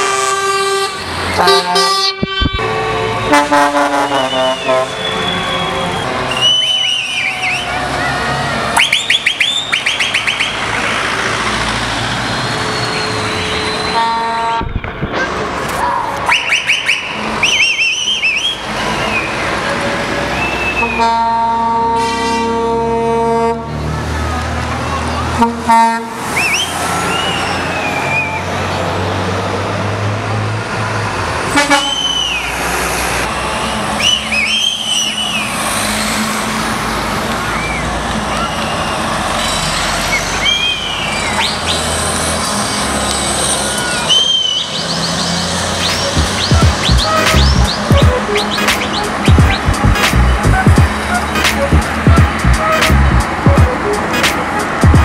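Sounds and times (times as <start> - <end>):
truck horn toot: 0.0 - 7.3, 12.7 - 14.8, 20.4 - 23.7, 25.4 - 28.4, 31.5 - 32.4, 45.8 - 54.8
rumble of passing vehicles: 0.0 - 55.0
truck engine drone: 0.0 - 55.0
high sliding whistles: 4.1 - 7.8, 12.5 - 14.0, 16.3 - 19.5, 26.4 - 28.5, 31.8 - 32.6, 33.6 - 35.6, 37.4 - 42.0, 43.4 - 54.8
rising electronic chirps: 45.8 - 54.2.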